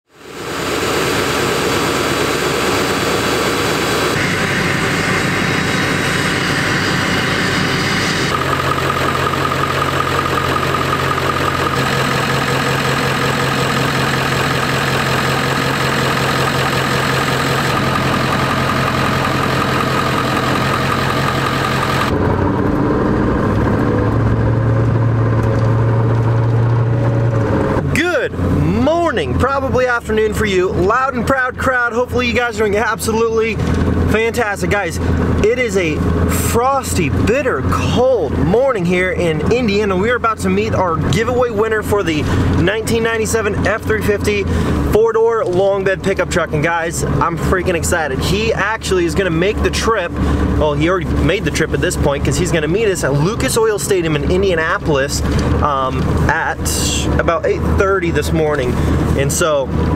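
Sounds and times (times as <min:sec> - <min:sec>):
deeper hum: 0:00.1 - 0:59.9
diesel engine idling: 0:00.2 - 0:59.9.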